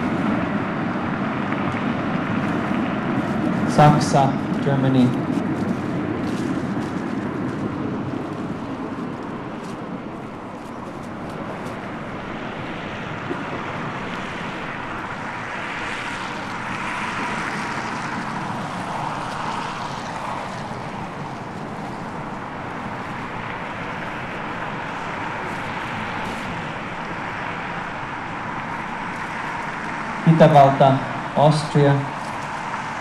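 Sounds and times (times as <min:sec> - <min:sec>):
road traffic: 0:00.0 - 0:33.0
vehicle passing: 0:00.0 - 0:33.0.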